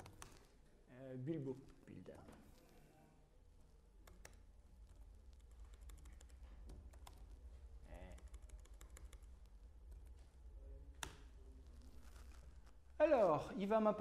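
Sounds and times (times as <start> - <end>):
laptop keyboard typing: 0.0 - 0.5, 3.9 - 10.3.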